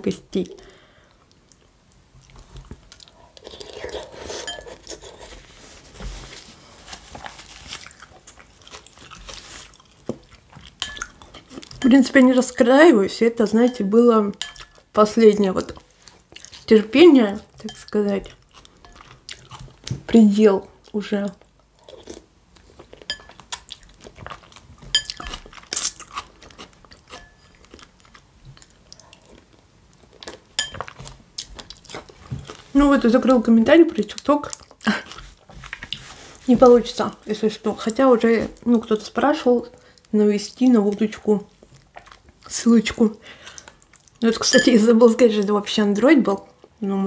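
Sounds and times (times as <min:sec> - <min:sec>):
chewing and crunching: 0:01.3 - 0:05.4, 0:06.9 - 0:12.6, 0:14.4 - 0:37.2, 0:39.8 - 0:42.6
spoon clinking against dish: 0:14.4 - 0:14.8, 0:23.1 - 0:23.4, 0:27.1 - 0:27.6, 0:44.5 - 0:44.8.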